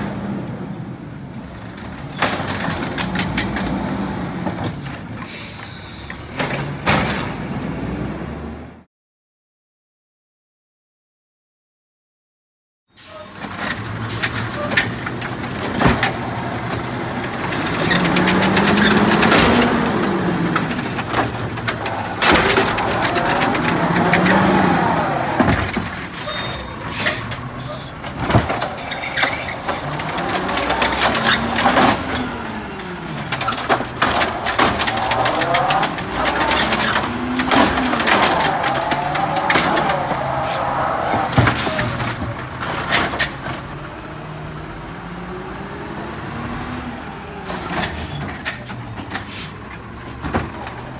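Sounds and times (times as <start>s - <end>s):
diesel engine revving: 0.0s - 8.9s, 13.8s - 50.9s
carts clanking against truck: 1.4s - 7.6s, 13.0s - 44.0s, 46.2s - 50.9s
hydraulic arm working: 13.4s - 43.7s.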